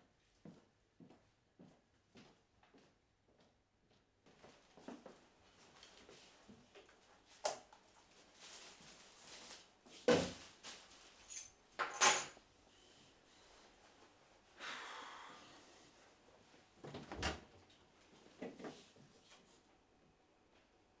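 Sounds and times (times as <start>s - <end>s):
soft rustle: 8.0s - 11.5s
keys jangling: 11.3s - 12.4s.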